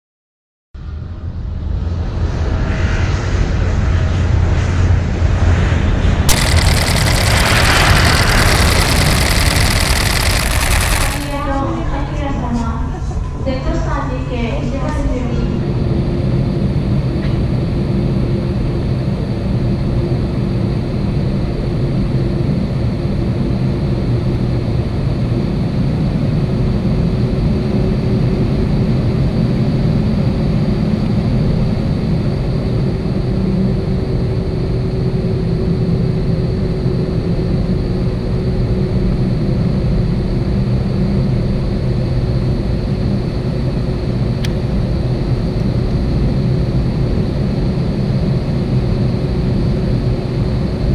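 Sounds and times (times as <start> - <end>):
faint steady whine: 6.3 - 11.6.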